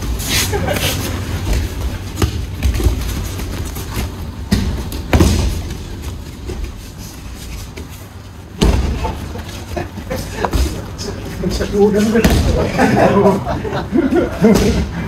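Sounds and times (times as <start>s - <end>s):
bodies thudding onto mats: 1.4s - 6.8s, 8.5s - 9.5s.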